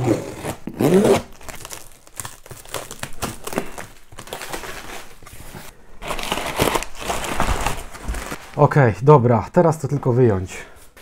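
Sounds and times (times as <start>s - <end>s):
plastic wrapping tearing and crinkling: 0.4s - 8.7s.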